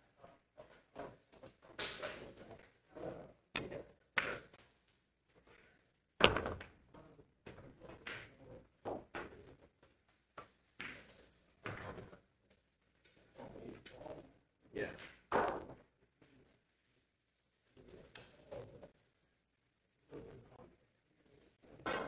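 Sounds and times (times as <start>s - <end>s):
billiard balls clacking: 3.5s - 4.6s, 6.2s - 12.2s.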